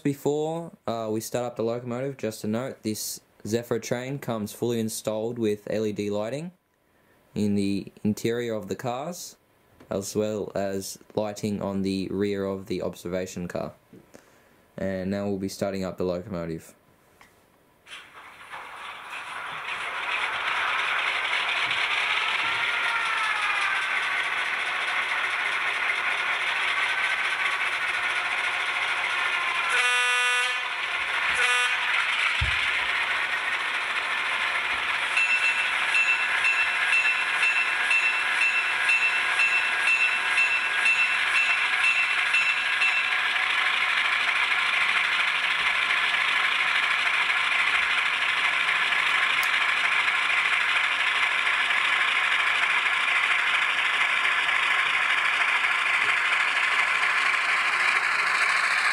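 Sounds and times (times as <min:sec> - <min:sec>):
model diesel engine running: 0:18.1 - 0:58.9
train horn blasts: 0:29.7 - 0:30.7, 0:31.3 - 0:31.9
locomotive bell ringing: 0:35.0 - 0:43.6.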